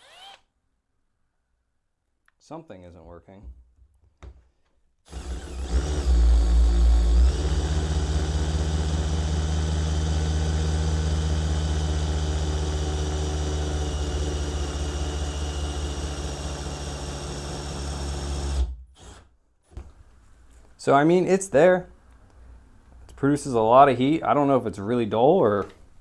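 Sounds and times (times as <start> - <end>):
cordless drill whining: 0.0 - 0.5, 5.1 - 19.3.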